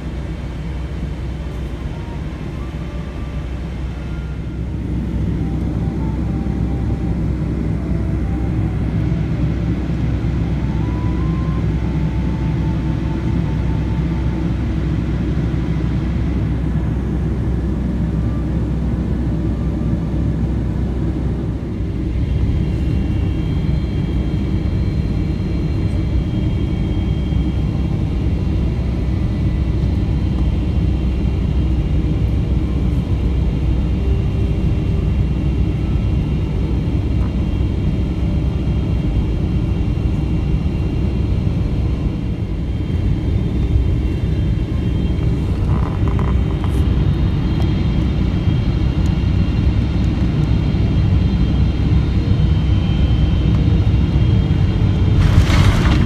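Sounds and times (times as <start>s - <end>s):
airplane cabin engine rumble: 0.0s - 56.0s
faint high steady tones: 0.9s - 16.1s.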